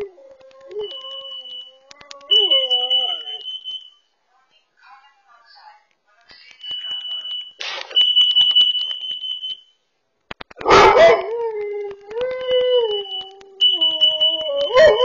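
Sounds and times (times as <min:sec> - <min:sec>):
dog howling: 0:00.0 - 0:03.4
dog barking: 0:10.6 - 0:11.3.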